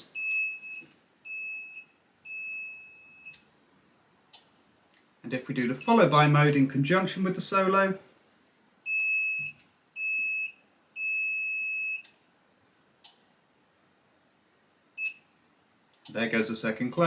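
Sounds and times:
electronic beeps: 0.0 - 3.4, 8.9 - 12.1, 15.0 - 15.3.

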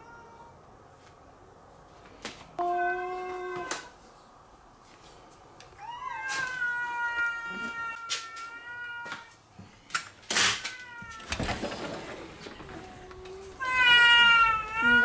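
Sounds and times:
cat meowing: 5.8 - 9.3, 12.8 - 15.0.

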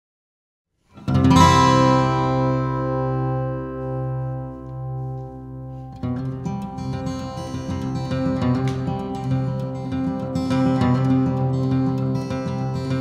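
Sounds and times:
ringing music chord: 1.4 - 8.8.

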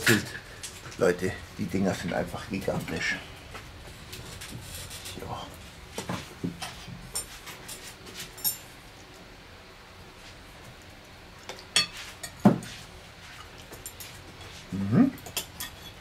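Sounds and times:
cutlery clinking on plates: 11.4 - 14.6, 15.2 - 16.0.

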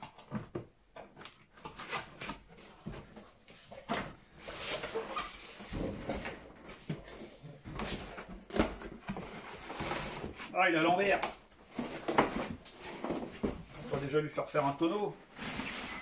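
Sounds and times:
cardboard scrapes and rustles: 4.3 - 11.0, 11.6 - 16.0.

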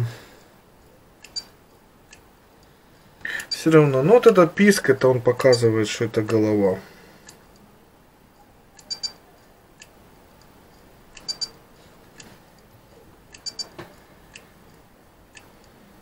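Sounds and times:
hard drive squeaking: 8.4 - 9.3, 12.9 - 13.9.

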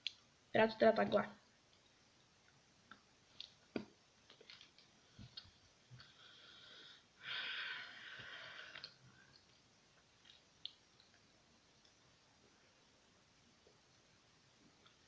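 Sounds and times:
breathy hiss: 6.0 - 9.4.

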